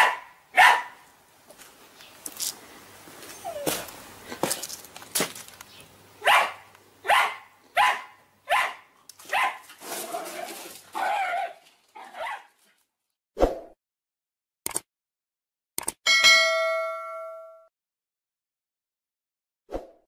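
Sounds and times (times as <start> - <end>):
small dog barking: 0.0 - 1.0, 6.2 - 9.7, 11.0 - 12.5.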